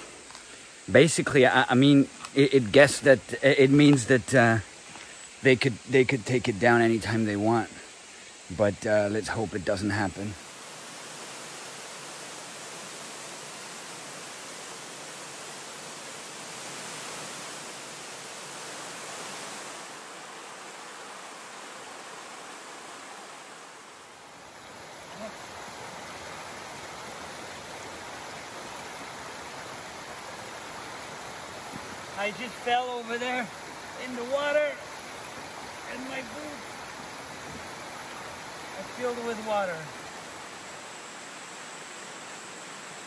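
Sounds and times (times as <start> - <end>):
waterfall rushing over rock: 10.2 - 43.0.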